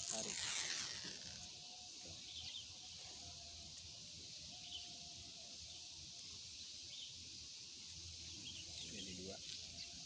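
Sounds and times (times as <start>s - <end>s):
faint bird chirps: 0.2s - 7.2s, 7.8s - 10.0s
steady high hiss: 3.0s - 10.0s.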